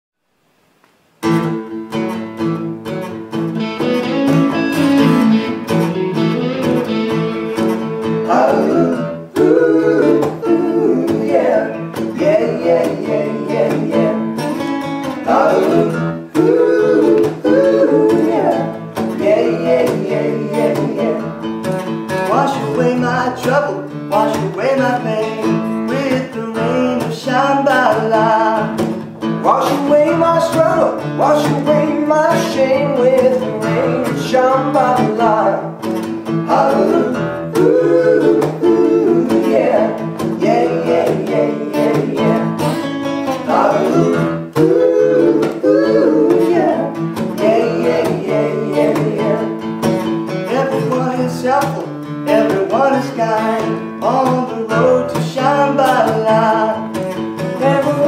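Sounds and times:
acoustic guitar strumming: 0:01.2 - 0:58.0
men singing in harmony: 0:08.2 - 0:21.4, 0:29.4 - 0:35.8, 0:36.4 - 0:49.6, 0:50.5 - 0:56.8, 0:57.6 - 0:58.0.

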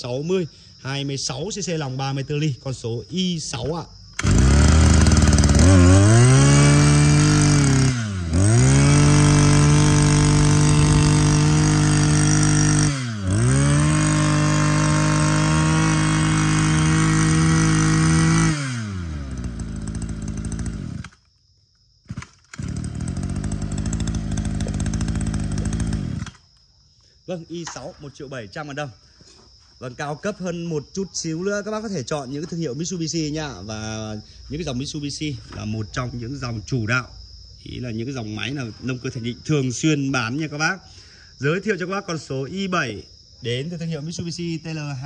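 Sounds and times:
brush cutter engine revving: 0:04.2 - 0:21.3, 0:22.1 - 0:26.5.

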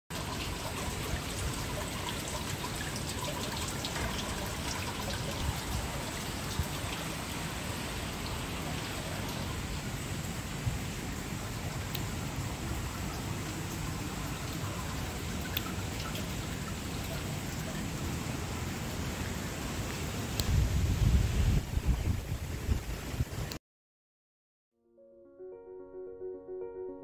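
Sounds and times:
trickling splashing water: 0:00.1 - 0:19.1.

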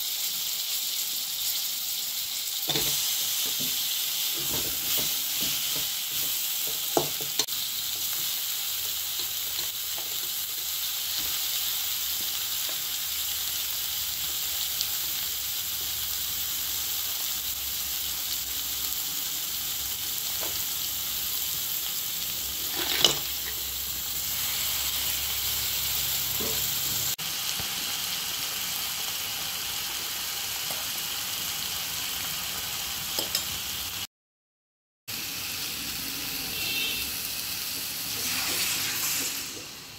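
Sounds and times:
food sizzling in hot oil: 0:00.0 - 0:34.1, 0:35.1 - 0:39.9
steel spoon scraping a pan: 0:02.7 - 0:10.4, 0:22.6 - 0:23.6.

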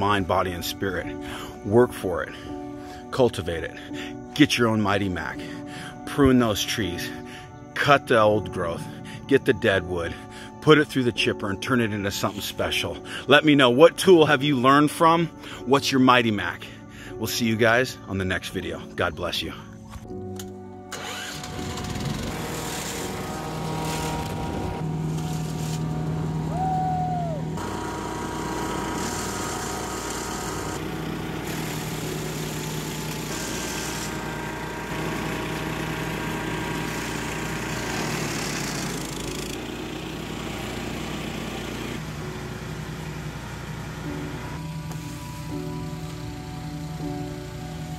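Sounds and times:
wood chipper engine running: 0:20.9 - 0:47.9.

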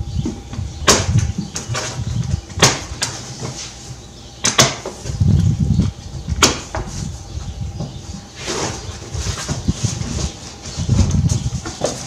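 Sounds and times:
cardboard rustling and scraping: 0:07.8 - 0:12.0.

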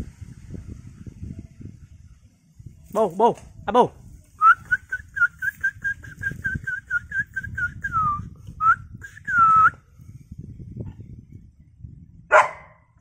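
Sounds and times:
person whistling for a dog: 0:04.4 - 0:09.8.

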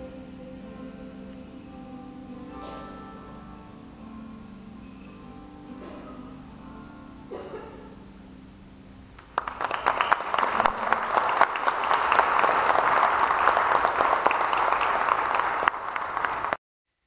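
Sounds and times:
audience applauding: 0:09.2 - 0:16.6.

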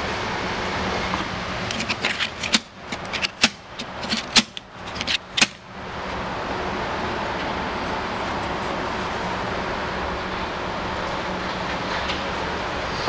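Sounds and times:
sharp plastic snaps: 0:01.7 - 0:05.6.

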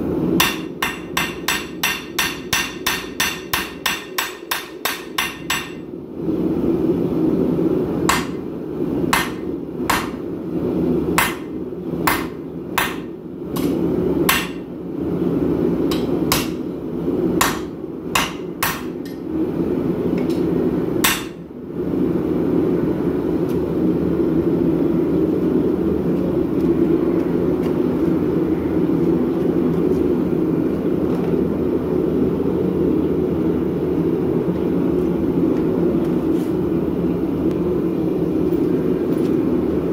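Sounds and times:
forge burner roaring: 0:00.0 - 0:39.9
hammer striking steel on anvil: 0:00.4 - 0:05.9, 0:08.1 - 0:08.4, 0:09.1 - 0:10.2, 0:11.2 - 0:14.7, 0:15.9 - 0:16.6, 0:17.4 - 0:19.2, 0:21.0 - 0:21.5.

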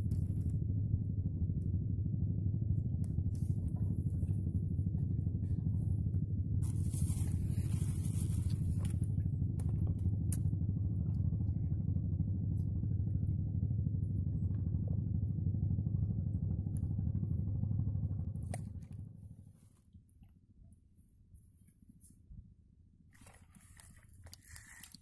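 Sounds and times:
boat engine rumbling: 0:00.0 - 0:21.3, 0:22.3 - 0:25.0.

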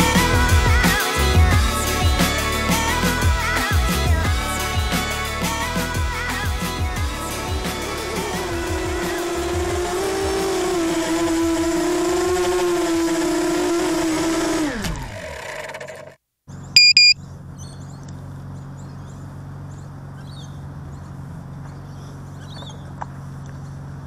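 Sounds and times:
quadcopter motors whining: 0:08.1 - 0:16.0
low outdoor background: 0:15.2 - 0:24.0
sharp high-pitched beeps: 0:16.8 - 0:17.2.

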